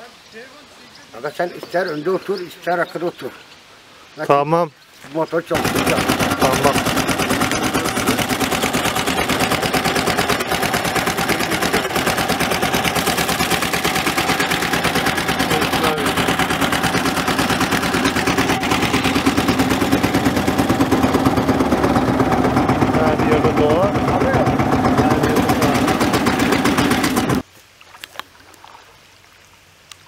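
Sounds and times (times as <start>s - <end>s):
boat engine chugging: 5.5s - 27.4s.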